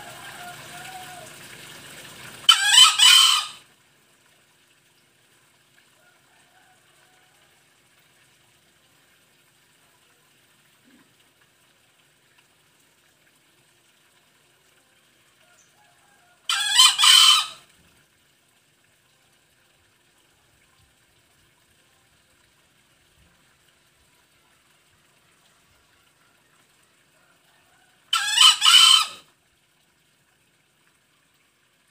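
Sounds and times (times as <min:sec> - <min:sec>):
junglefowl crowing: 0:00.0 - 0:01.4, 0:02.4 - 0:03.6, 0:15.4 - 0:17.6, 0:27.2 - 0:29.3.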